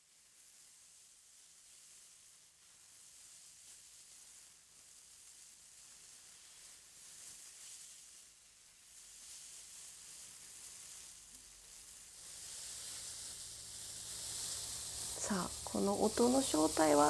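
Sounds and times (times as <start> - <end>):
plastic bag rustling: 0.4 - 17.0.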